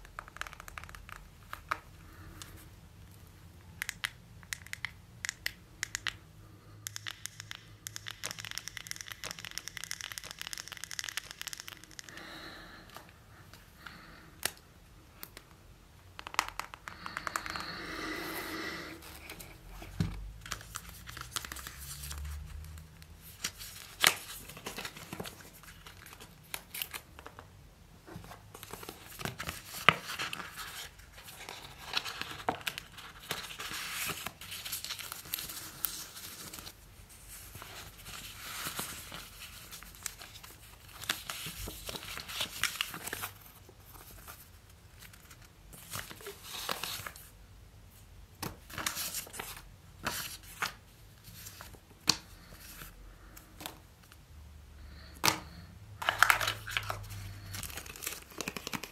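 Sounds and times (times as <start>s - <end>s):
plastic and paper crinkling: 19.0s - 27.5s, 28.2s - 47.3s, 56.0s - 58.9s.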